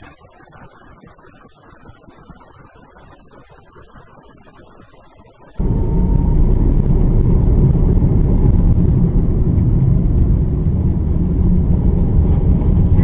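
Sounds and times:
car engine and road noise: 0:05.5 - 0:13.0.

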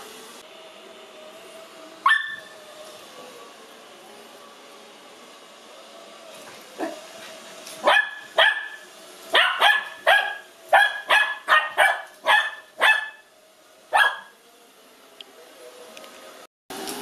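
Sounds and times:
puppy barking: 0:02.0 - 0:02.6, 0:06.8 - 0:07.0, 0:07.8 - 0:13.3, 0:13.9 - 0:14.4.

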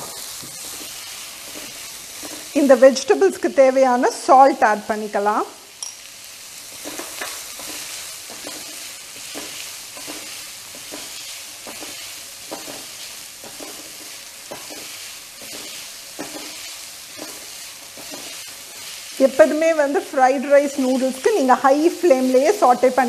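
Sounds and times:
spatula scraping a wok: 0:00.0 - 0:02.8, 0:06.6 - 0:19.6
vegetables sizzling in oil: 0:00.0 - 0:23.0.

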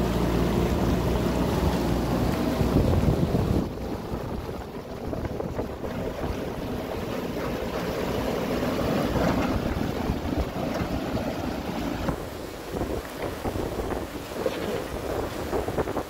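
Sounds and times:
diesel engine running: 0:00.0 - 0:12.4
rushing river water: 0:00.0 - 0:16.0
wind buffeting microphone: 0:00.0 - 0:16.0.

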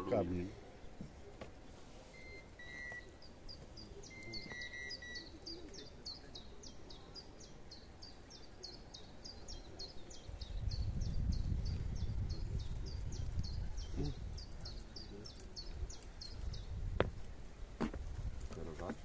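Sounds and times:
wind rumble on microphone: 0:10.2 - 0:18.6.

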